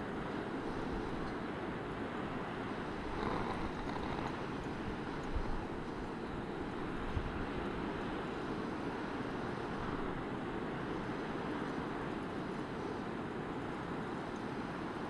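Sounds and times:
wind rushing over microphone: 2.7s - 8.7s.

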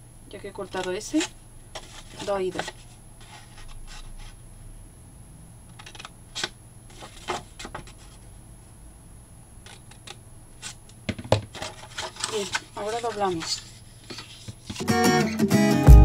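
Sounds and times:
paper rustling: 0.6s - 4.4s, 5.8s - 8.2s, 11.5s - 14.9s.

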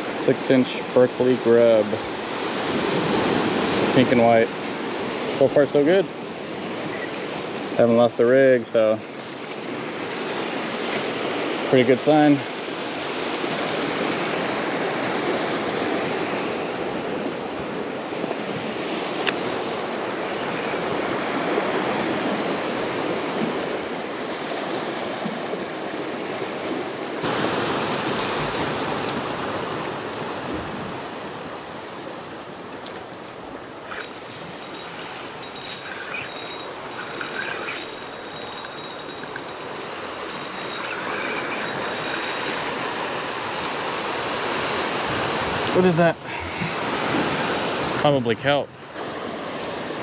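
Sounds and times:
surf washing around rocks: 9.5s - 35.4s, 42.6s - 50.0s
fishing reel clicking: 33.9s - 43.1s, 45.5s - 45.8s, 47.2s - 48.1s.

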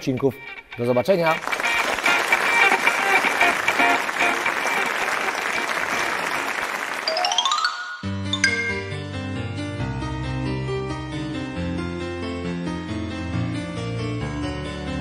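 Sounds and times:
show music: 0.0s - 9.7s
light keyboard music: 0.0s - 15.0s
applause: 1.3s - 7.5s.

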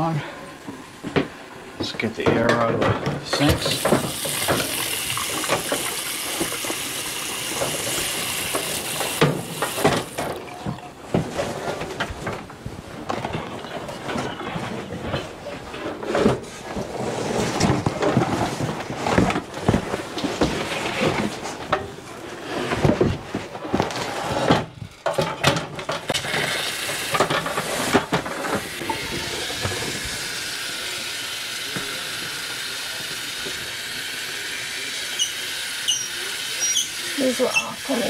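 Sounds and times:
cardboard rustling: 16.2s - 21.6s.

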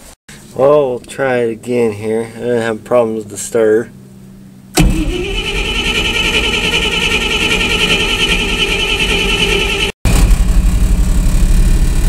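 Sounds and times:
starter motor cranking: 4.8s - 10.0s.

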